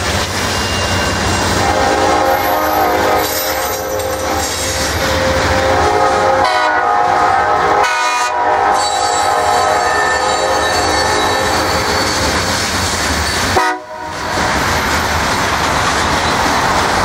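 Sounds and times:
train horn blasts: 0:01.6 - 0:12.4, 0:13.5 - 0:14.2
freight cars rumbling: 0:10.2 - 0:17.0.

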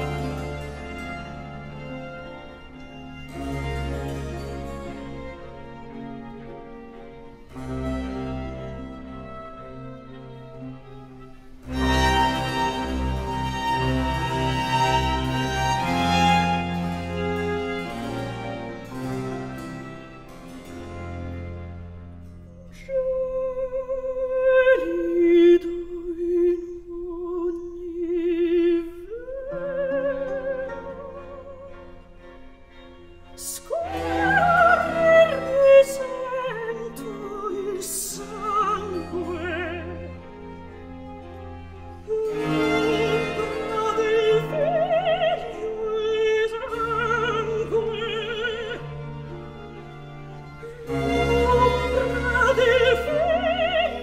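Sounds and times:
orchestral accompaniment: 0:00.0 - 0:25.6, 0:28.2 - 0:54.0.

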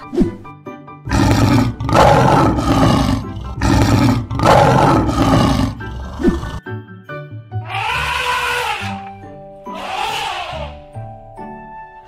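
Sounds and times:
lion roaring: 0:01.1 - 0:06.6.

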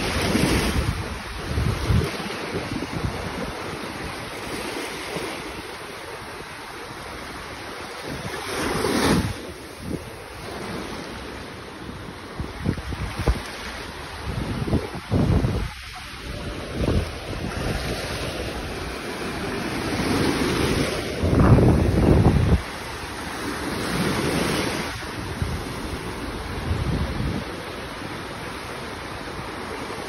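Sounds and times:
wind buffeting microphone: 0:00.0 - 0:04.2, 0:12.2 - 0:27.6
small waves breaking on shore: 0:00.0 - 0:30.0.

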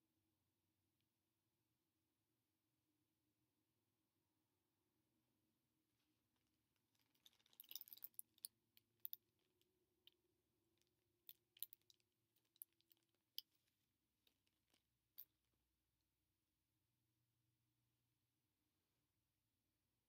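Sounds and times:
small objects clicking: 0:07.0 - 0:10.2, 0:10.8 - 0:13.7.

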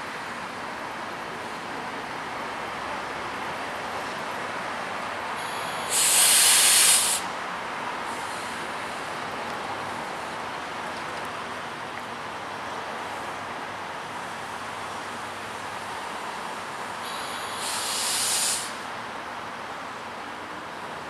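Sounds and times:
railroad background noise: 0:00.0 - 0:21.0
locomotive pressure hiss: 0:05.4 - 0:07.4, 0:08.0 - 0:09.1, 0:16.6 - 0:18.9.

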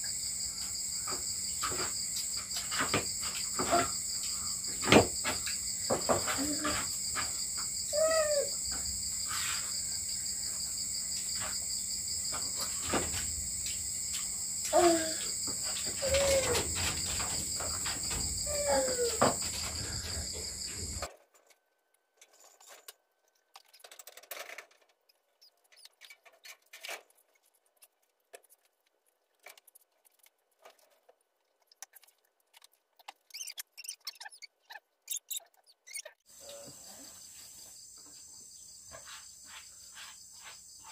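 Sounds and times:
crickets chirping: 0:00.0 - 0:21.1, 0:35.1 - 0:40.9.

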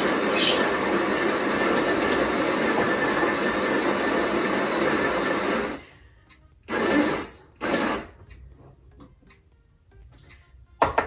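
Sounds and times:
burr grinder grinding coffee beans: 0:00.0 - 0:05.8, 0:06.7 - 0:08.2.

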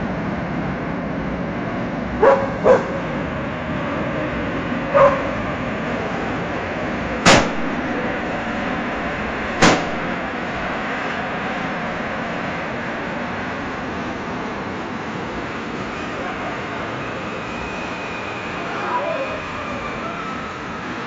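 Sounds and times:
traffic noise: 0:00.0 - 0:21.0
dog barking: 0:02.2 - 0:03.1, 0:04.9 - 0:05.4
gunshot bangs: 0:07.2 - 0:07.8, 0:09.6 - 0:10.2.

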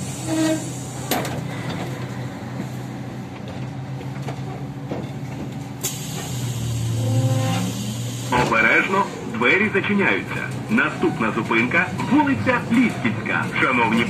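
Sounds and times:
trolleybus humming: 0:00.0 - 0:14.0
air hiss: 0:05.8 - 0:08.4.

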